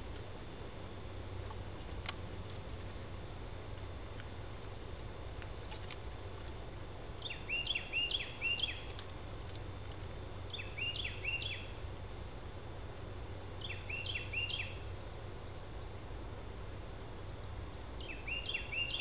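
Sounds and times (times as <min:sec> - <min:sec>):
steady low hum: 0:00.0 - 0:19.0
songbird singing: 0:07.0 - 0:11.9, 0:13.5 - 0:15.6, 0:17.3 - 0:19.0.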